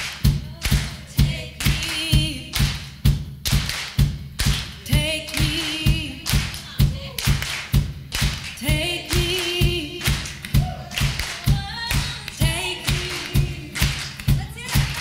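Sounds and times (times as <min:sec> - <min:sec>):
drum thumps: 0:00.0 - 0:15.0
handclaps: 0:00.0 - 0:15.0
live band: 0:00.0 - 0:15.0
woman singing with vibrato: 0:00.4 - 0:02.6, 0:04.8 - 0:07.4, 0:08.6 - 0:15.0.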